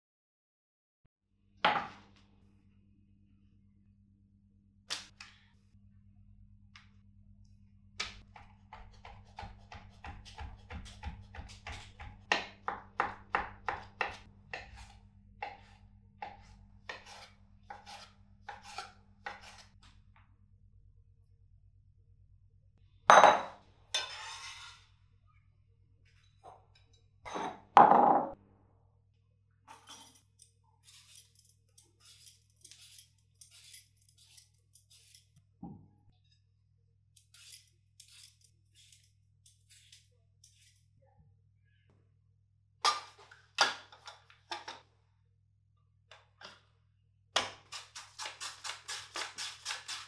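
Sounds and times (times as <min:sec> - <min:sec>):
peeler scraping potato skin: 0:30.8 - 0:35.4, 0:37.2 - 0:40.8, 0:47.6 - 0:50.0.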